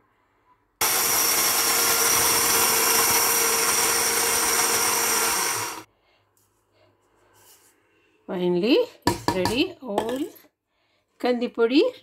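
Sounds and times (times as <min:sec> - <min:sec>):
spice grinder motor whine: 0:00.8 - 0:05.9.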